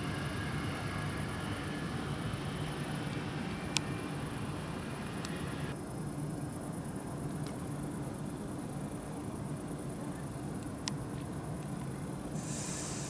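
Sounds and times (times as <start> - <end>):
low hum: 0.0 - 5.8
insects chirring: 0.0 - 13.0
short hiss: 12.3 - 13.0.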